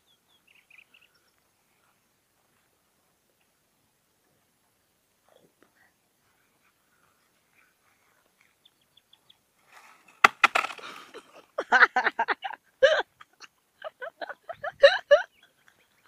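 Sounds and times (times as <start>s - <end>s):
branch rustling and crashing down: 9.7s - 11.2s.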